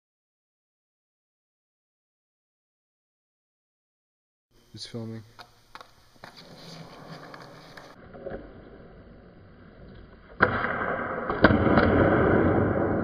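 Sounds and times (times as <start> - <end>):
skateboard clicks: 5.4 - 8.7
skateboard wheels rolling on concrete: 5.4 - 13.0.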